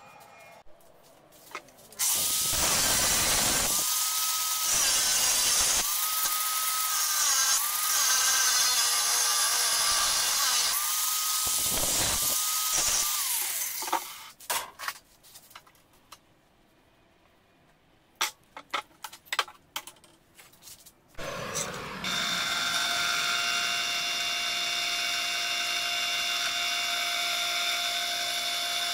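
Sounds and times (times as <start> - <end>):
angle grinder cutting steel: 2.0 - 14.3, 21.2 - 28.9.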